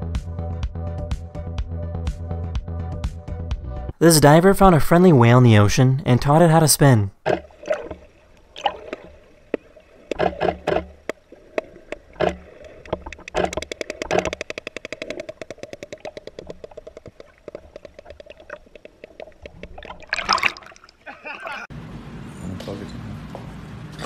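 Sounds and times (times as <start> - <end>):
whale clicking underwater: 7.2 - 21.1.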